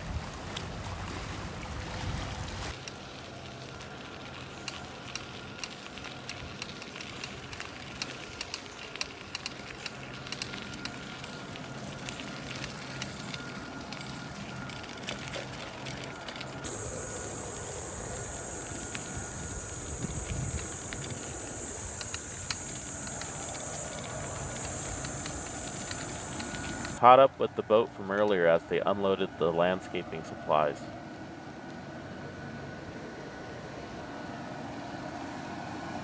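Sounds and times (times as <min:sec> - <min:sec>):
mountain bike rattling on gravel: 0:00.0 - 0:27.0
steady high hiss: 0:16.6 - 0:30.7.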